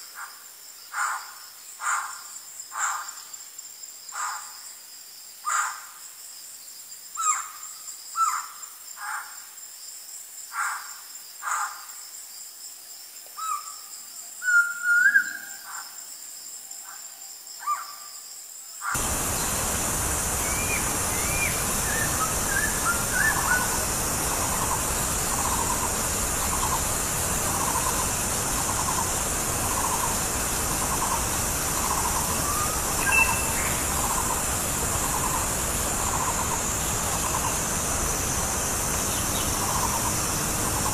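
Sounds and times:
bird whistled calls: 14.4 - 15.6, 20.4 - 26.8, 31.8 - 34.4
steady high hiss: 18.2 - 40.9.

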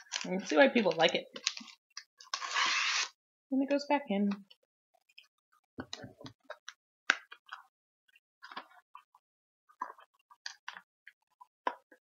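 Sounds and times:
plastic wrapper crinkling: 0.0 - 3.1.

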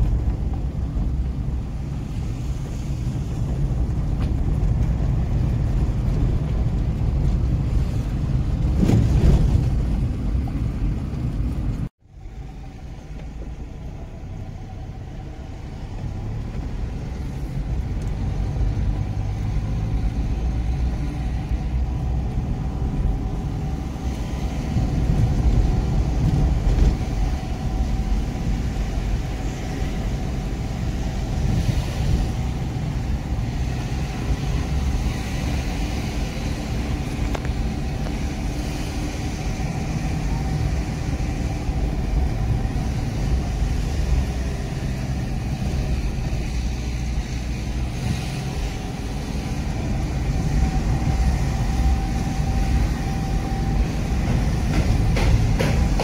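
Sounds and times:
car engine and tyres rumbling: 0.0 - 56.0.

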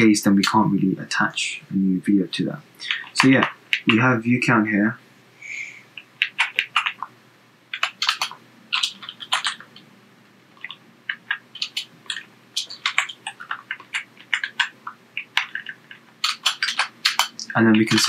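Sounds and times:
keyboard typing: 2.8 - 4.1, 6.0 - 7.1, 7.7 - 9.9, 10.5 - 18.0.

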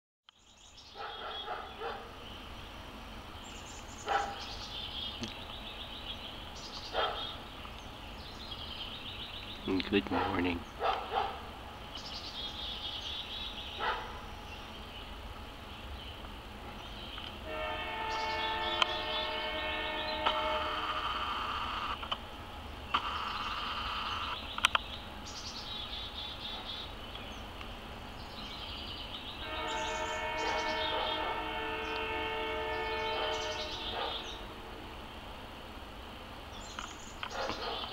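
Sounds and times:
birds singing with high trills: 0.3 - 20.7, 21.8 - 35.8
low background noise: 0.3 - 37.9
distant train horn: 17.4 - 21.7, 29.3 - 35.2
short loud bird calls: 17.5 - 22.1, 22.9 - 27.0, 28.8 - 34.5
insects chirring: 22.9 - 27.5.

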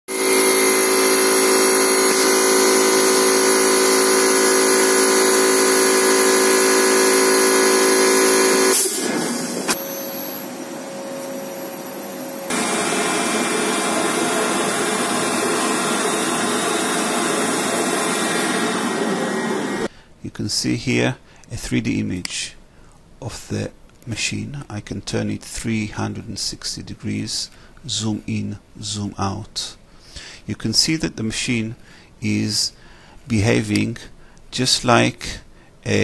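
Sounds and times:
lathe cutting metal: 0.1 - 19.9
workshop machinery whine and hum: 0.1 - 19.9.

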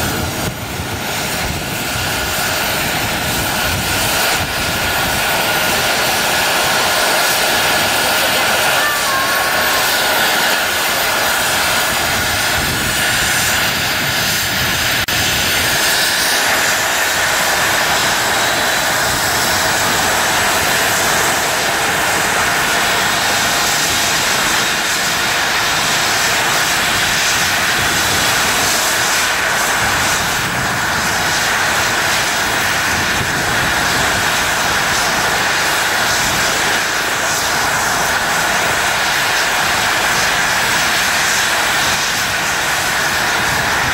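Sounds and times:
helicopter turbine whine: 0.0 - 43.9
rotor blades rushing: 0.1 - 22.2.

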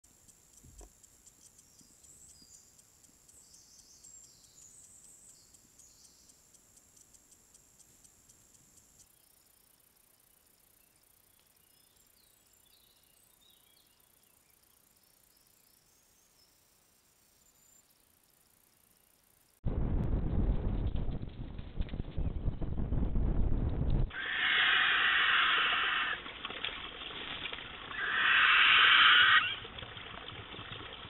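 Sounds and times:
steady high hiss: 24.1 - 26.3.

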